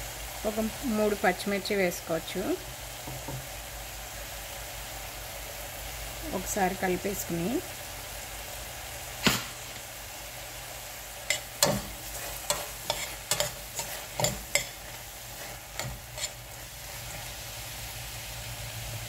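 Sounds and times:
frying sizzle: 0.0 - 19.0
spoon scraping a metal pot: 11.3 - 17.3.

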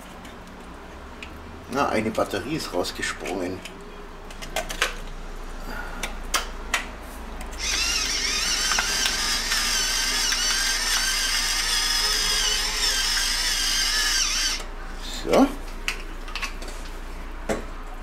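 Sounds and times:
electric pepper mill whirring: 7.6 - 14.7.

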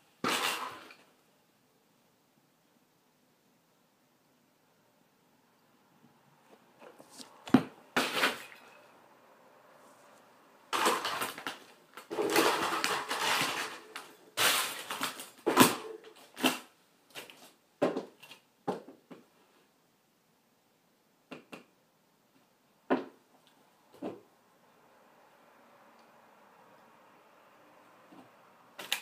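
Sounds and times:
plastic toy cars clattering: 0.2 - 1.1, 8.0 - 8.8, 10.7 - 17.4, 28.8 - 29.0.

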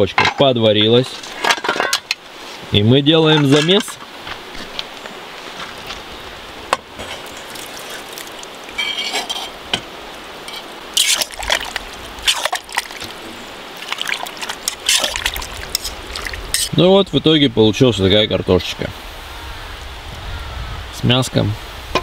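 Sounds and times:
steady hiss of frying: 2.1 - 22.0.

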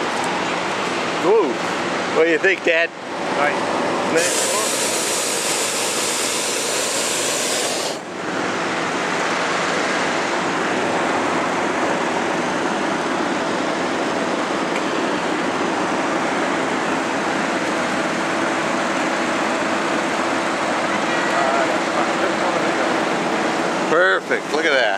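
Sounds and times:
propane burner firing: 4.1 - 8.3.

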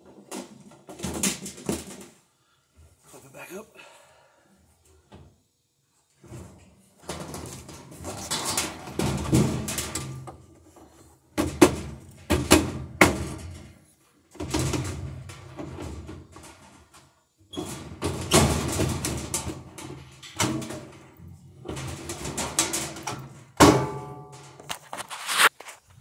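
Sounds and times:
metal cabinet scraping and rumbling: 6.2 - 10.6, 14.4 - 24.6.

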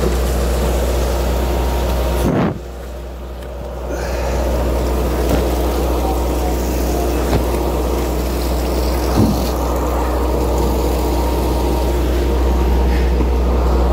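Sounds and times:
diesel engine droning: 0.0 - 13.9
water pouring from hose: 0.0 - 13.9
loud thump: 9.2 - 9.5.

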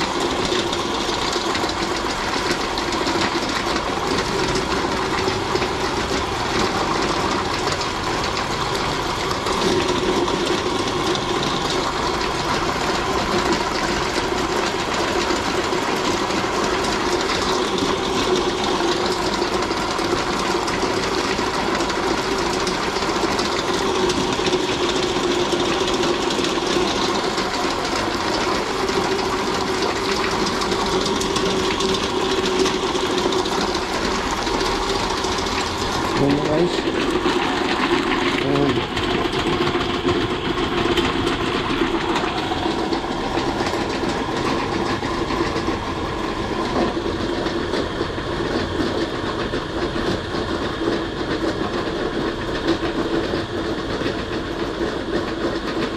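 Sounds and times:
meat grinder running: 0.0 - 55.9.

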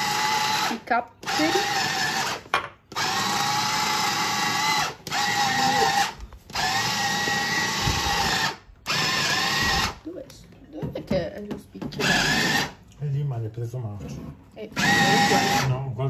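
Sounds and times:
electric food chopper motor whine: 0.0 - 10.0, 12.0 - 12.8, 14.7 - 15.9.

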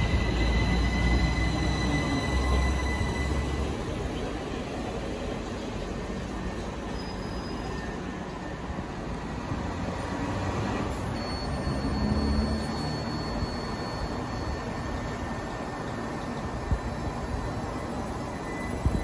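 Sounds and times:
high-pitched squeal: 0.0 - 3.9, 11.0 - 15.4
train wheels rumbling on rails: 0.0 - 19.0.

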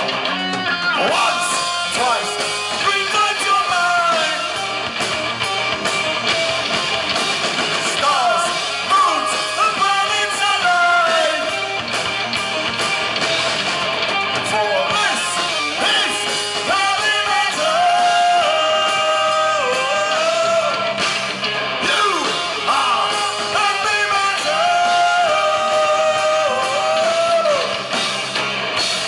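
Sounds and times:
bass guitar: 0.0 - 29.0
drums: 0.0 - 29.0
electric guitar: 0.0 - 29.0
person singing: 14.7 - 20.9, 21.8 - 27.9.

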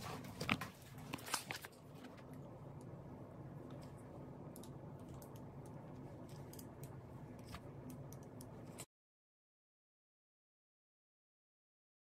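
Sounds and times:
low steady hum: 0.0 - 8.9.

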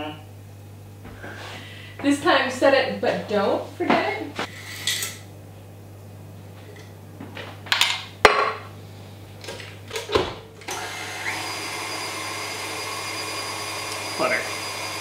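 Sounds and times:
stand mixer motor running: 10.7 - 15.0.

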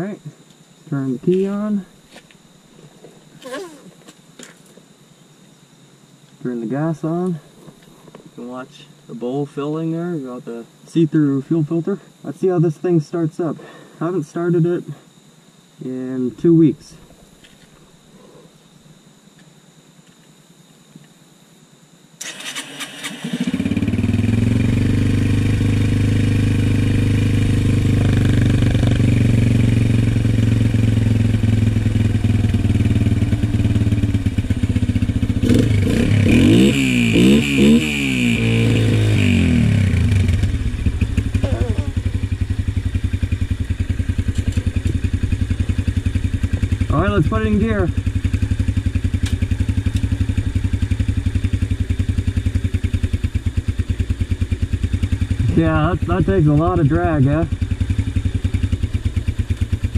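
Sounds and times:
motorcycle engine starting and running: 22.2 - 59.9.

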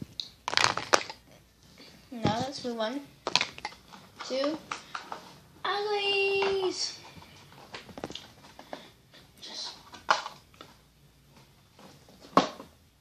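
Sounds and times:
toys clicking and rustling: 2.2 - 5.3.

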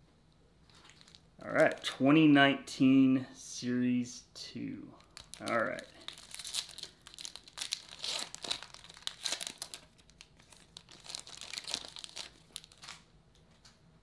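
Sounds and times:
foil wrapper tearing and crinkling: 0.7 - 1.9, 5.0 - 13.1.

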